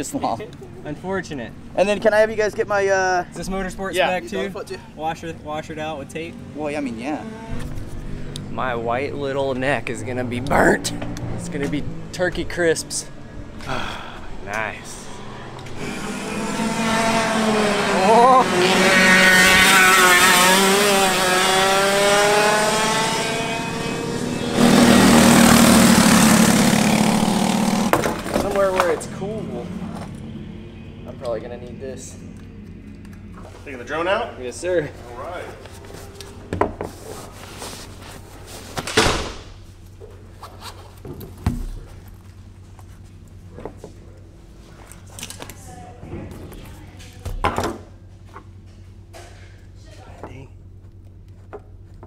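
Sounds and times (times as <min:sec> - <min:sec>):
kart engines buzzing: 0:00.0 - 0:38.7
louder dense engine buzz: 0:06.2 - 0:28.3, 0:29.0 - 0:33.4
low hum: 0:07.2 - 0:28.3
zipper rustle: 0:40.2 - 0:41.0.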